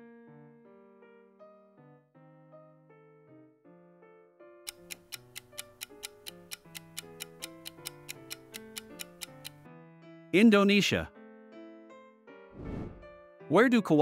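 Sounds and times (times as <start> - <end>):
soft piano music: 0.0 - 14.0
countdown timer ticking: 4.7 - 9.6.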